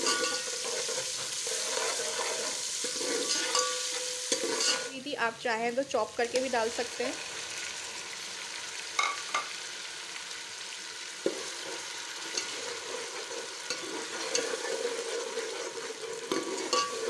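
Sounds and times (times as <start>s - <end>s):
metal spoon scraping a pot: 0.0s - 4.9s, 11.2s - 17.0s
paste sizzling in hot oil: 0.0s - 17.0s.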